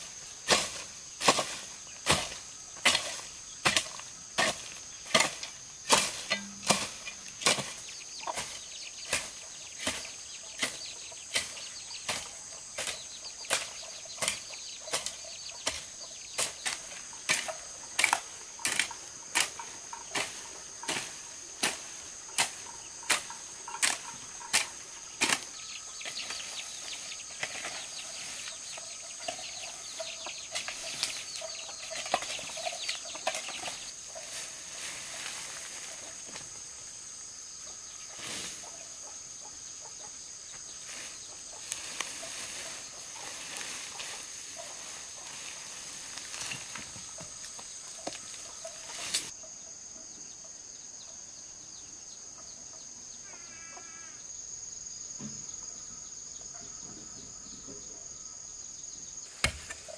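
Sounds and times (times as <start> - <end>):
hoe chopping into soil: 0.4 - 28.4, 59.3 - 59.9
hoe scraping through weeds: 0.4 - 36.2, 40.8 - 49.3.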